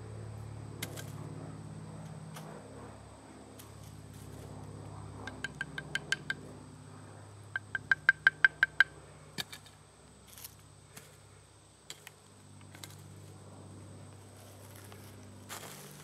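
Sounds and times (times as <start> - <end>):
ringing wooden taps: 5.3 - 6.4, 7.6 - 8.9.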